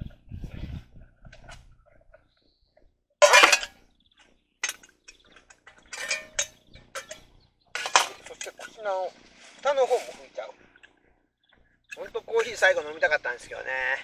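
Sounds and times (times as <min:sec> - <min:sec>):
metal cookware clattering: 0:03.2 - 0:03.8, 0:04.6 - 0:08.8.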